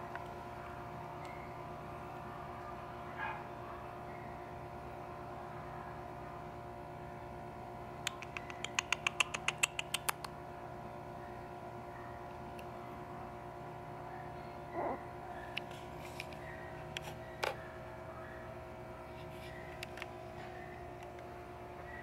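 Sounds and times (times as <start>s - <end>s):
steady electrical hum: 0.0s - 22.0s
quick sharp clicks: 8.0s - 10.4s.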